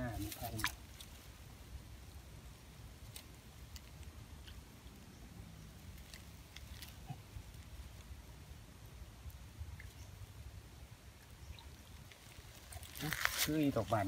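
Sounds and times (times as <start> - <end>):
small water splashes: 0.0 - 1.4, 9.2 - 14.0.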